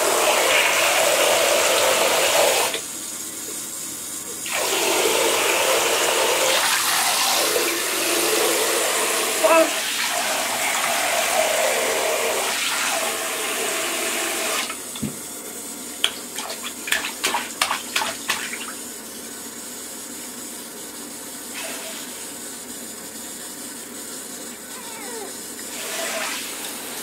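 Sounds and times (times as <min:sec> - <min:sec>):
shower spraying into bathtub: 0:00.0 - 0:27.0
quick splashes and knocks: 0:16.0 - 0:18.7.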